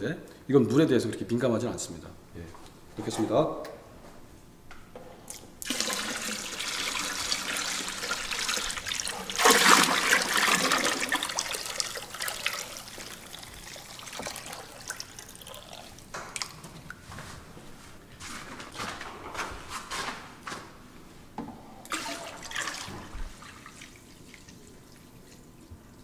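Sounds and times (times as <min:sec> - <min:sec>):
water pouring into plastic drum: 0:05.6 - 0:16.5, 0:21.9 - 0:24.9.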